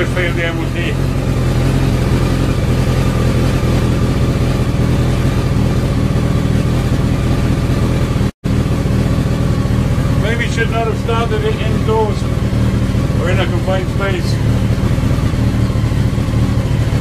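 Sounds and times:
motorcycle engine idling: 0:00.0 - 0:17.0.

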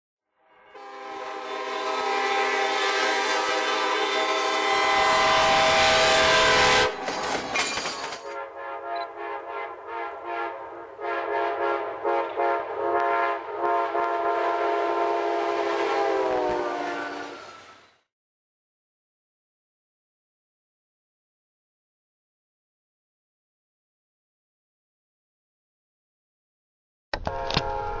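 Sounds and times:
locomotive air horn chord: 0:00.6 - 0:07.0, 0:08.2 - 0:17.9, 0:27.2 - 0:28.0
passing train rumble: 0:00.8 - 0:18.0
wheels clicking over rail joints: 0:07.0 - 0:08.4.

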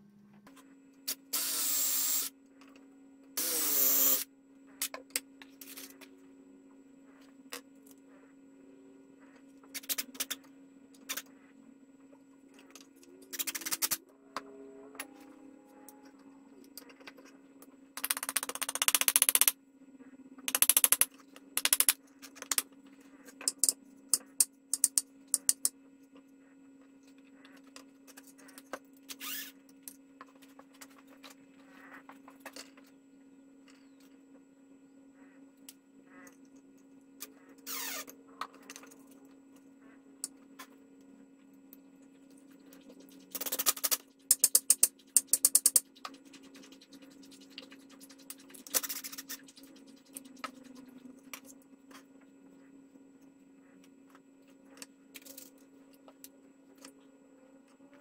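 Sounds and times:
steady low hum: 0:00.0 - 0:58.0
cordless drill boring wood: 0:01.4 - 0:02.3, 0:03.4 - 0:04.2.

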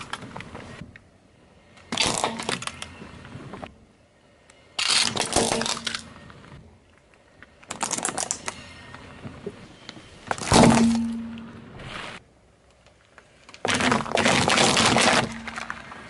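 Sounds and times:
plastic crunching under car tyre: 0:13.5 - 0:16.0.

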